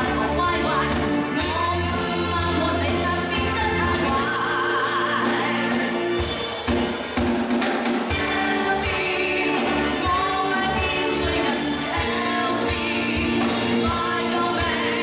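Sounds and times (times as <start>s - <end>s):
woman singing: 0.0s - 6.3s, 8.1s - 15.0s
live pop band playing: 0.0s - 15.0s.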